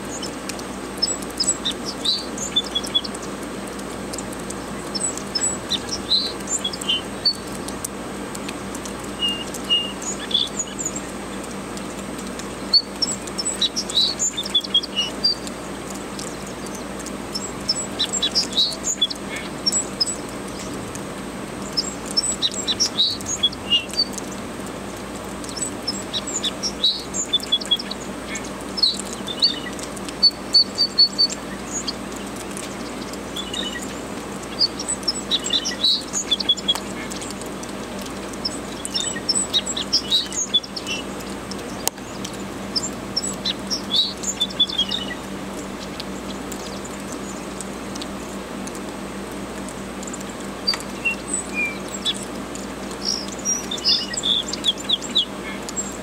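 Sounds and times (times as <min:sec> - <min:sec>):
songbird chirping and warbling: 0:00.0 - 0:03.4, 0:04.5 - 0:07.6, 0:09.1 - 0:11.4, 0:12.3 - 0:15.6, 0:16.2 - 0:21.0, 0:21.6 - 0:24.5, 0:25.4 - 0:37.4, 0:38.3 - 0:47.4, 0:50.6 - 0:52.3, 0:52.9 - 0:56.0.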